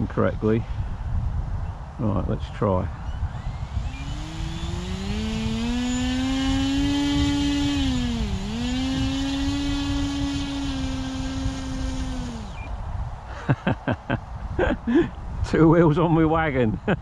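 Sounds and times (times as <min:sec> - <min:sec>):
low rumbling: 0:00.0 - 0:16.4
electric motor and propeller whine: 0:02.8 - 0:12.9.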